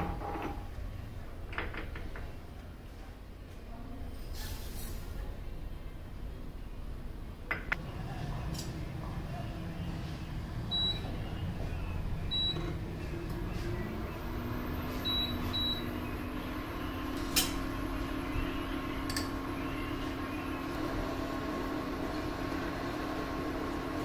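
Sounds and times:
cooling fan humming: 0:05.6 - 0:24.0.

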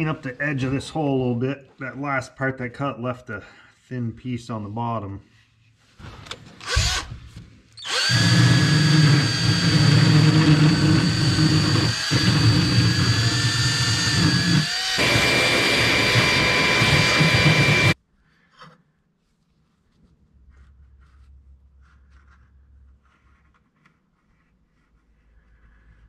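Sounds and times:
cordless drill whining on metal: 0:06.6 - 0:07.1, 0:07.8 - 0:18.0.

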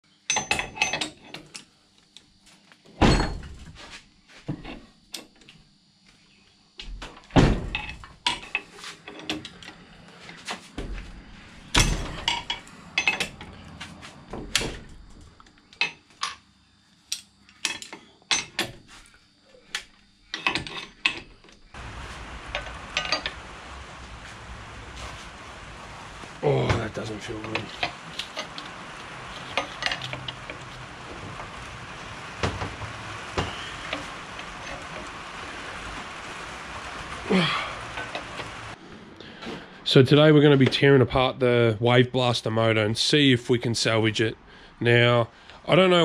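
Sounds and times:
heavy thumps: 0:21.8 - 0:34.6.

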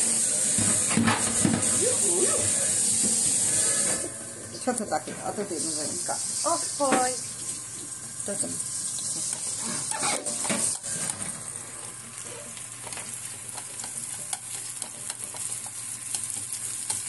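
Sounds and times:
food sizzling in hot oil: 0:00.0 - 0:17.0.

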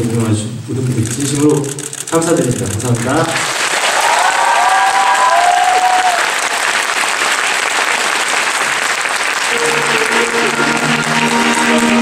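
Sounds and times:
audience applauding: 0:02.6 - 0:12.0
stage music with held notes: 0:09.2 - 0:12.0.

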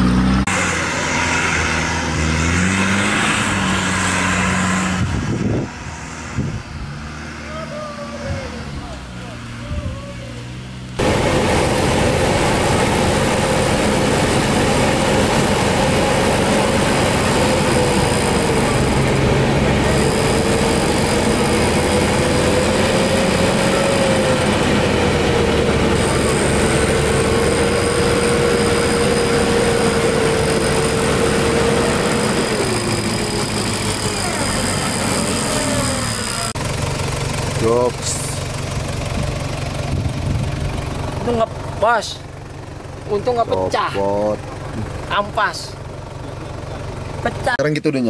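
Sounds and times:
vehicle engine running: 0:00.0 - 0:48.0
electric winch whining: 0:11.0 - 0:43.3.

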